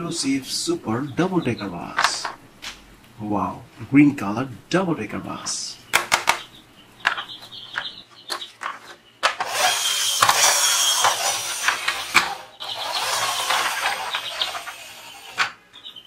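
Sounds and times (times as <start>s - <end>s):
toy bus wheels whirring: 9.4s - 15.6s.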